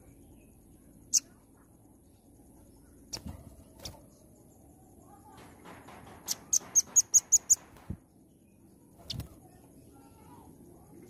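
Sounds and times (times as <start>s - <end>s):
dull knock: 5.4s - 8.0s.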